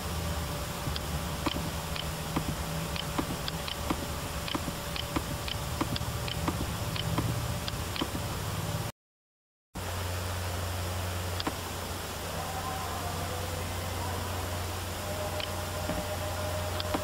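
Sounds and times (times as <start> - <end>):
steady low background hum: 0.0 - 8.9, 9.8 - 17.0
computer mouse clicking: 0.9 - 8.3, 16.8 - 17.0.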